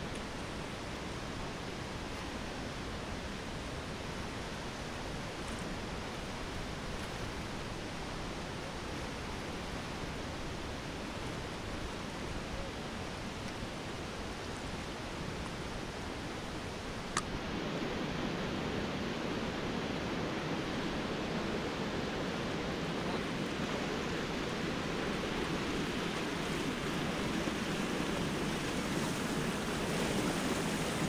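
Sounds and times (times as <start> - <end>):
whitewater rapids rushing: 0.1 - 31.0
sharp click: 17.1 - 17.3.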